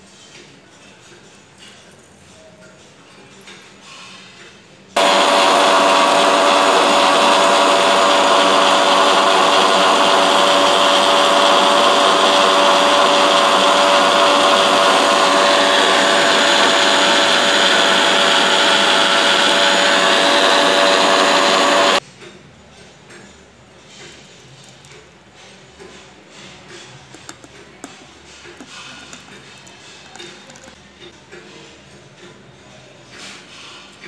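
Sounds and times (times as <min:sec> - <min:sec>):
mixer grinder motor whine: 0:05.0 - 0:22.0.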